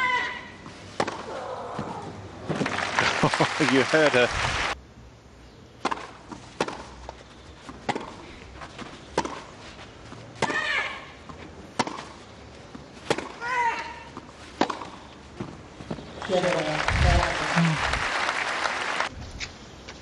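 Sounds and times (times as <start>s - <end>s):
racket hitting tennis ball: 0.9s - 2.7s, 5.8s - 15.6s.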